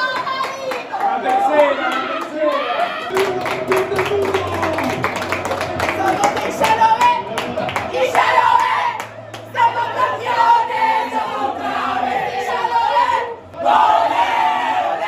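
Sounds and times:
crowd singing and shouting: 0:06.0 - 0:15.0.

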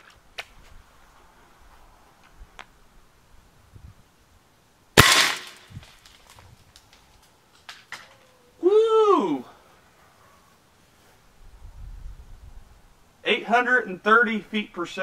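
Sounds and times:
air rifle shot: 0:05.0 - 0:05.8.

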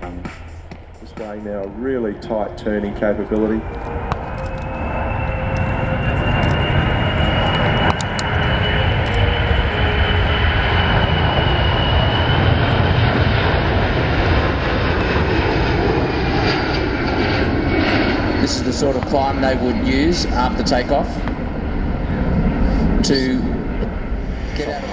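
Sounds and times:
high whine: 0:00.0 - 0:24.9
jet engines roaring: 0:00.0 - 0:24.9.

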